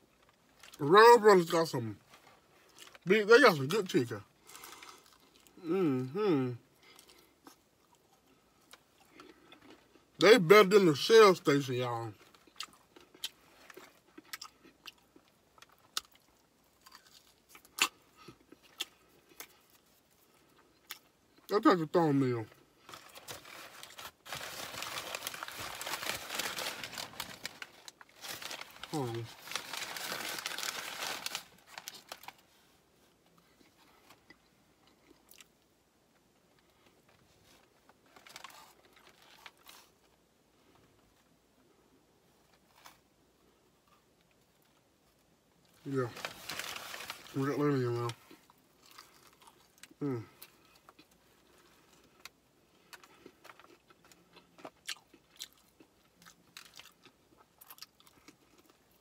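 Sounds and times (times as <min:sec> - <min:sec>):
crunchy food being chewed: 0:12.2 - 0:21.5, 0:48.0 - 0:59.0.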